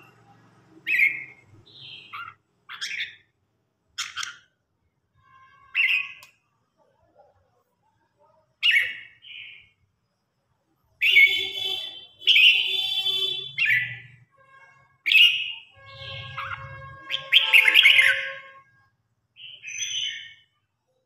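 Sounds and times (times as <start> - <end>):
bird singing: 0.0 - 3.4, 5.6 - 6.4, 8.6 - 9.9, 10.9 - 14.2, 15.0 - 18.6, 19.4 - 20.6.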